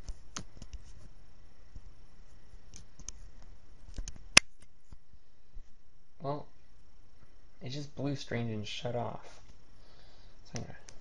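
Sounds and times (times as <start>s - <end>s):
sharp loud click: 4.0s - 4.7s.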